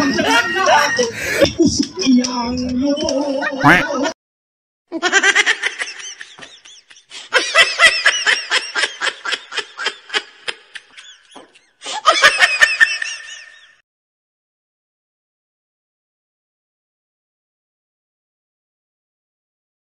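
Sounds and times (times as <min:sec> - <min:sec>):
person laughing: 0:00.0 - 0:02.0, 0:03.6 - 0:04.0, 0:04.9 - 0:13.8.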